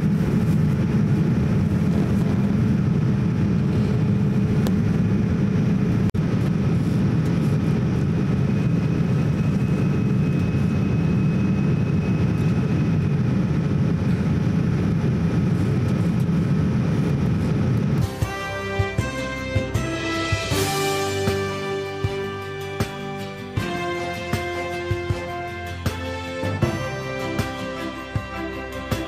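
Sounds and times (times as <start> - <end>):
faint whine tones: 0.0 - 18.0
jet engine and airflow rumble: 0.0 - 29.0.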